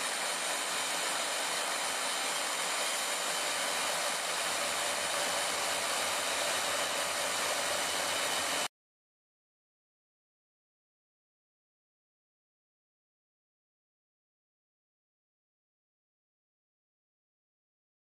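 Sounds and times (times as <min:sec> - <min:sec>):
power grinder grinding metal: 0:00.0 - 0:08.7.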